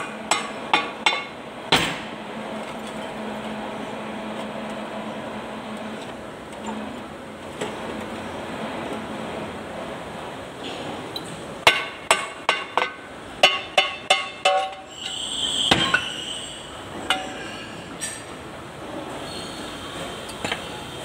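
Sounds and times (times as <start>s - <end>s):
metal-on-metal knocks: 11.7s - 14.8s.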